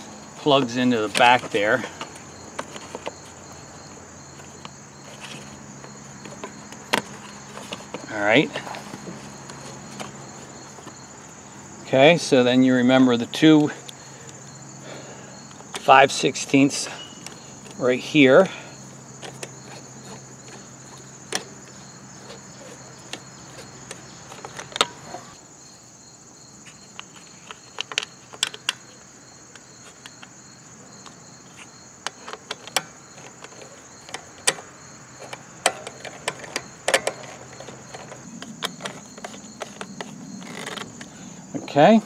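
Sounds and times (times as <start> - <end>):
crickets chirping: 0.0 - 42.0
plastic and metal parts clicking: 19.2 - 25.2, 26.7 - 30.3, 32.0 - 41.1.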